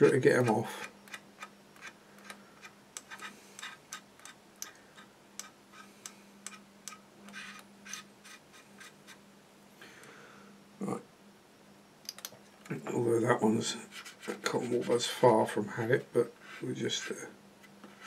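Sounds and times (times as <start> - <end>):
low steady hum: 0.0 - 18.0
cotton bud scratching plastic: 7.3 - 9.2, 13.8 - 15.1.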